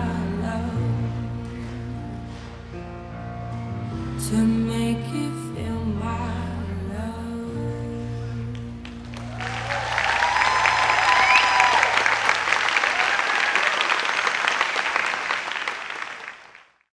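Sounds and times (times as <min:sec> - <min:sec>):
audience applauding: 0:08.8 - 0:16.9
people cheering: 0:09.0 - 0:16.5.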